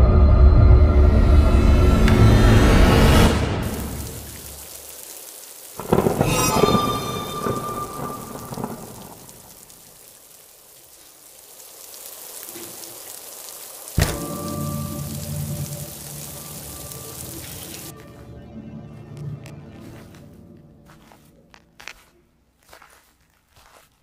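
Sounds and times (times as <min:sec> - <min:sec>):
steady rain: 0:01.3 - 0:23.9
thunderclap rumbling: 0:05.8 - 0:10.1.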